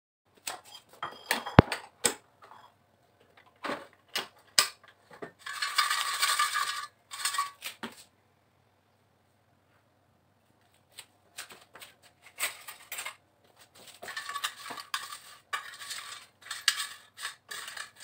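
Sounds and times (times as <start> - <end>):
fries rattling in basket: 5.4 - 7.8, 11.4 - 18.0.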